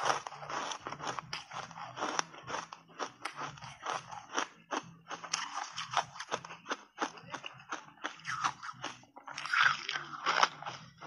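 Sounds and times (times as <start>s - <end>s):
ice being chewed crunchily: 0.0s - 11.0s.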